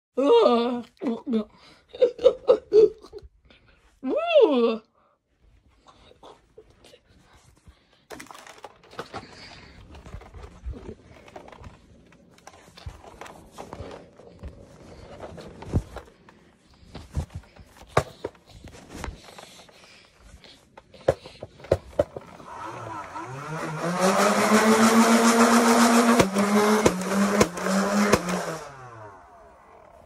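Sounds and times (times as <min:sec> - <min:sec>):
toy blaster motor whine: 0:22.2 - 0:30.0.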